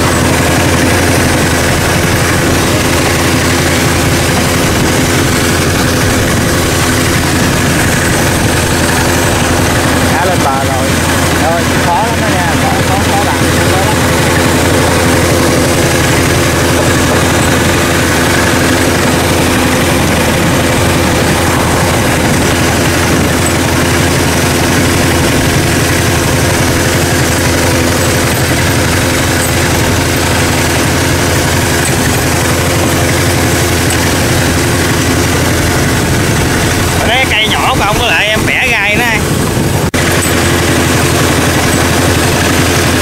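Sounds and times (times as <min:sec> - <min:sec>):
boat engine humming: 0:00.0 - 0:43.0.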